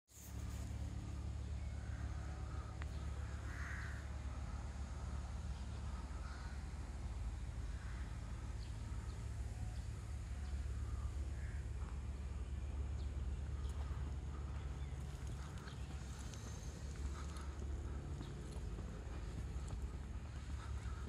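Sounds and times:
faint bird calls: 0:00.2 - 0:21.0
steady low rumble: 0:00.2 - 0:21.0.

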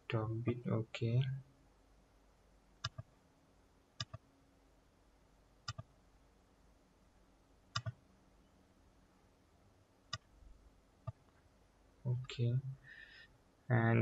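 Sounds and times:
computer mouse clicking: 0:02.8 - 0:03.1, 0:04.0 - 0:04.2, 0:05.7 - 0:05.9, 0:07.7 - 0:08.0.

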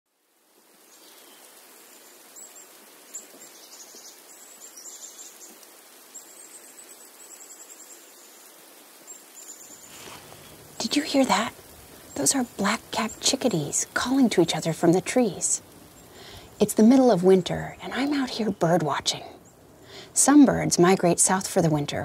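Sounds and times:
steady outdoor hiss: 0:00.1 - 0:22.0
chickadees calling: 0:09.4 - 0:16.6.

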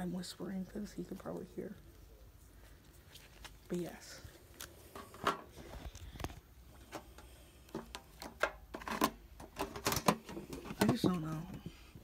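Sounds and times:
soft rustling: 0:00.4 - 0:07.2.

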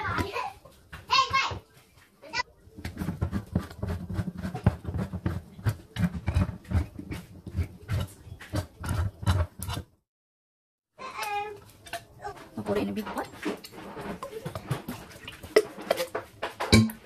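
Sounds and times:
can opener clicking and scraping: 0:02.9 - 0:09.9.

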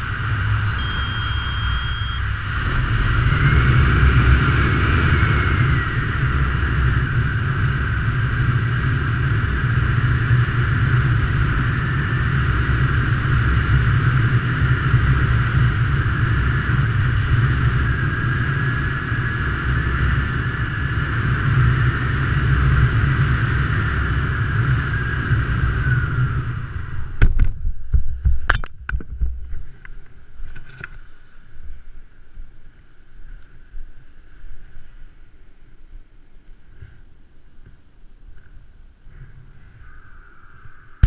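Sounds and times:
wind rushing over camera: 0:00.0 - 0:41.0
high whistle: 0:00.6 - 0:02.5.

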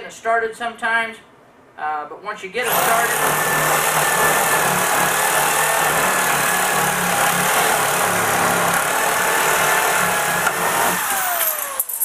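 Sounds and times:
electric sheet metal shear cutting: 0:02.6 - 0:12.0.

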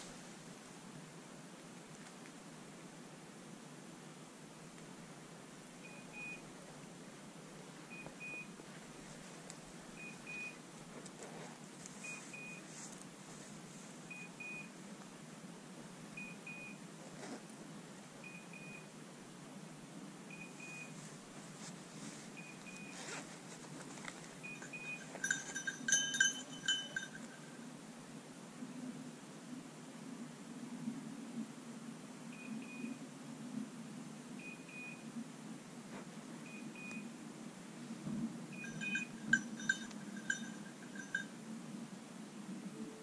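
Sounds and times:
beeper collar double beeps: 0:05.8 - 0:06.4, 0:07.9 - 0:08.5, 0:10.0 - 0:10.6, 0:16.2 - 0:16.8, 0:20.3 - 0:20.9, 0:22.4 - 0:23.0, 0:24.4 - 0:27.3, 0:38.5 - 0:41.3
brush crackling: 0:20.8 - 0:27.6
steady multi-pitch tone: 0:38.6 - 0:41.3.

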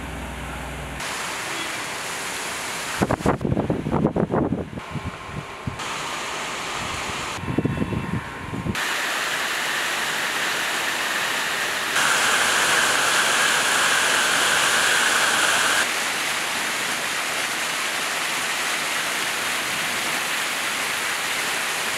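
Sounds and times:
rainwater cascading down steps: 0:01.0 - 0:03.4, 0:05.8 - 0:07.4, 0:08.8 - 0:21.9
heavy rain: 0:01.0 - 0:03.6, 0:05.8 - 0:07.4, 0:08.8 - 0:21.9.

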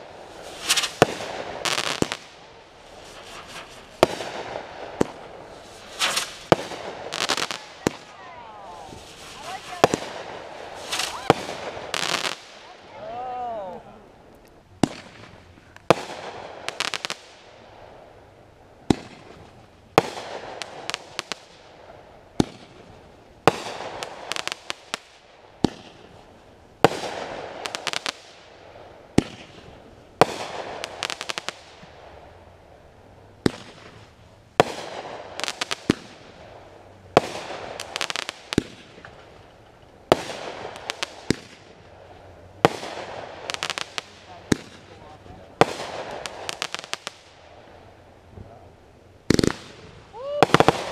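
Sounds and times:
firework shells bursting: 0:00.0 - 0:12.7, 0:49.2 - 0:50.9
firework crackling: 0:00.0 - 0:50.9.

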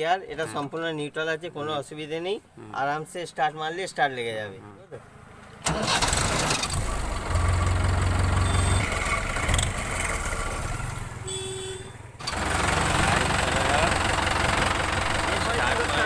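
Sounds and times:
tractor diesel engine starting: 0:05.6 - 0:11.2, 0:12.2 - 0:16.0.

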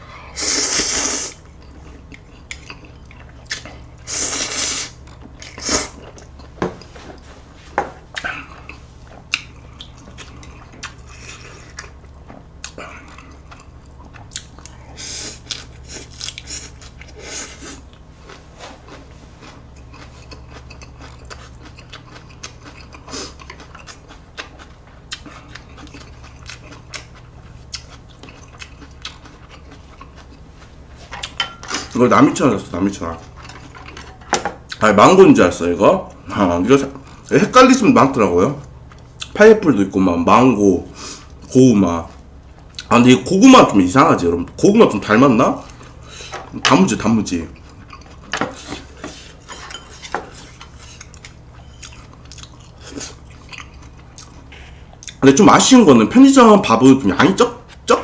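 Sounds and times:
steady low hum: 0:00.0 - 0:58.0
loud noodle slurping: 0:00.4 - 0:01.4
close-up chewing: 0:08.1 - 0:31.4, 0:47.5 - 0:55.2.

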